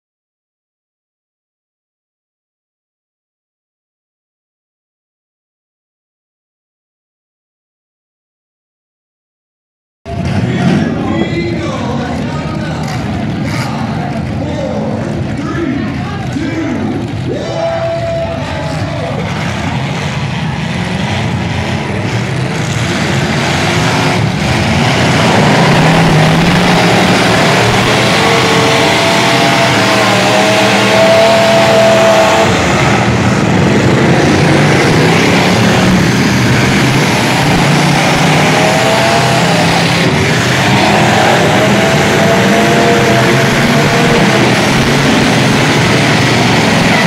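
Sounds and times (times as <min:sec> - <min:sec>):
pickup truck engines revving: 0:10.1 - 0:47.0.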